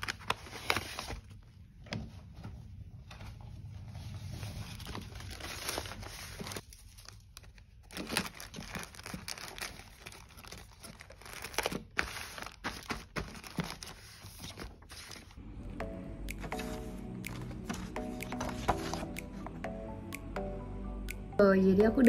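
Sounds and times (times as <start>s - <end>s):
paper bag rustling: 3.6s - 15.4s
plastic mailer crinkling: 4.5s - 15.4s.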